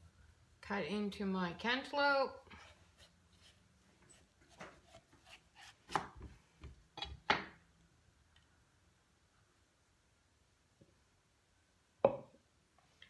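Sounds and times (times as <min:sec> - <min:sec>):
knife cutting melon on board: 0:04.5 - 0:06.4.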